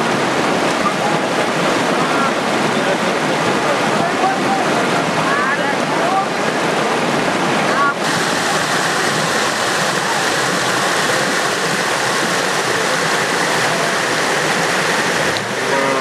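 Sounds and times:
river rushing over rocks: 0.0 - 16.0.

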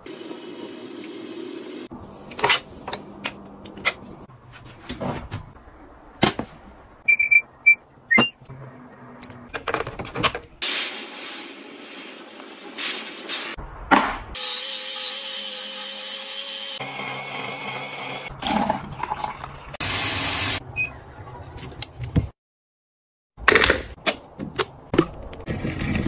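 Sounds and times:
short electronic beeps: 7.1 - 8.4.

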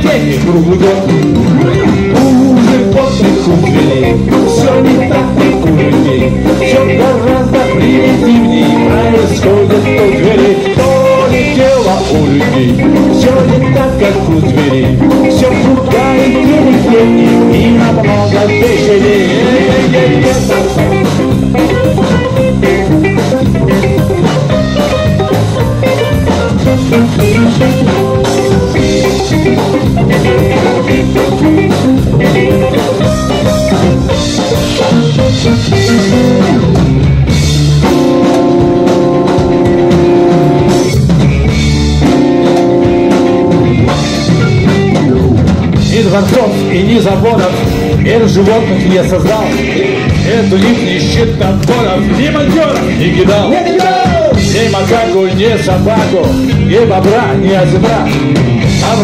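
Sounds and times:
held keyboard chords: 0.0 - 59.0
rock band playing: 0.0 - 59.0.

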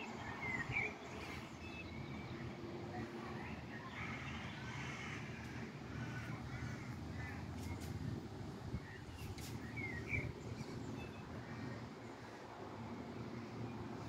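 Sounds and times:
crows cawing: 4.6 - 7.5.

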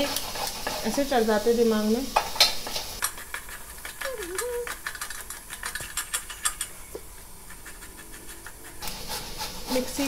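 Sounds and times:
tomato grating scrapes: 3.0 - 6.7, 7.4 - 10.0.

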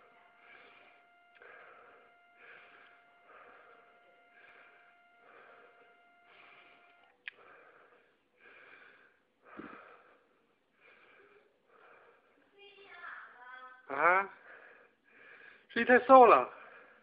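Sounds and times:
faint steady tone: 0.0 - 12.4
quick rhythmic breathing: 0.0 - 13.6, 16.5 - 17.0.

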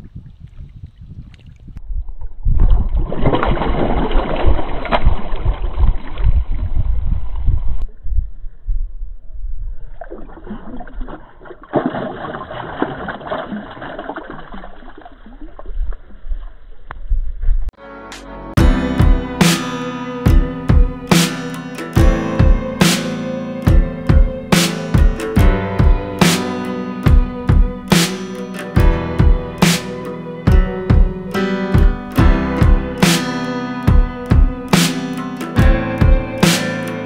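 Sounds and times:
water sloshing and splashing: 0.0 - 7.5, 9.8 - 16.6
wind rumble on microphone: 0.0 - 11.2, 15.4 - 17.7.

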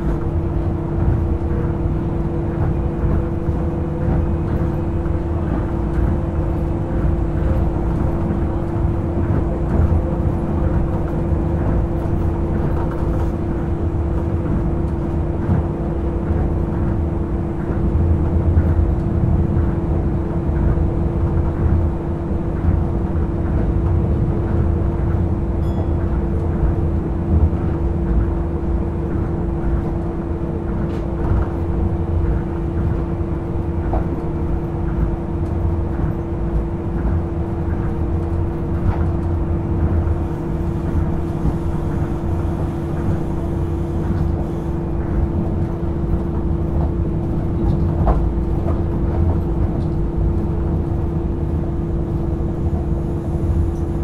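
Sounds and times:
train car rumble: 0.0 - 54.0.

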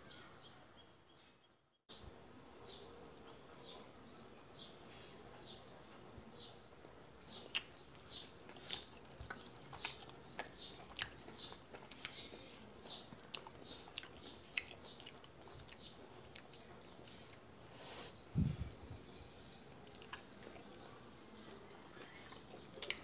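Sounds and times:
person chewing food: 6.8 - 21.1, 21.8 - 23.0.

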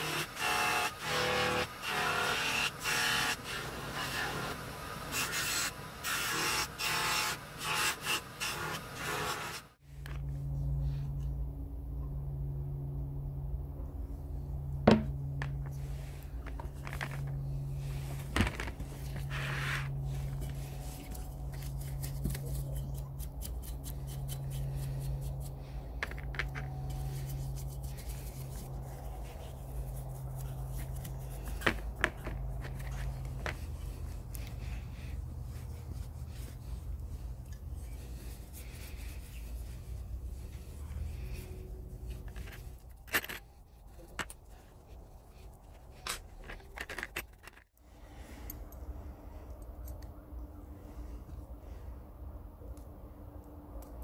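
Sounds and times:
metal piece knocking: 14.9 - 15.7
cloth rubbing metal: 15.8 - 22.8, 26.8 - 44.1
paintbrush scrubbing metal: 26.7 - 42.8.

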